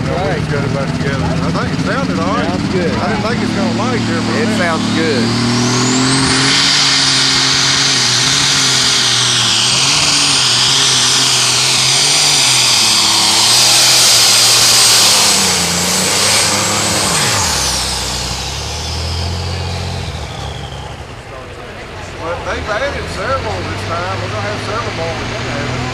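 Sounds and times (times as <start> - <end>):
high steady turbo whine: 0.0 - 25.9
turbocharged tractor engine: 0.0 - 25.9.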